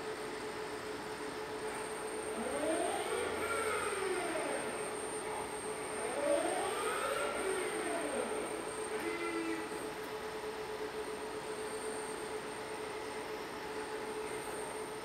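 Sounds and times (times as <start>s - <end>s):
robot arm servo motors whining: 2.4s - 5.4s, 6.0s - 9.8s.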